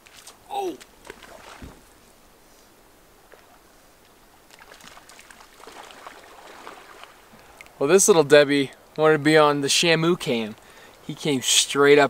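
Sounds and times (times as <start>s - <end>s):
fish splashing in water: 4.5s - 7.2s.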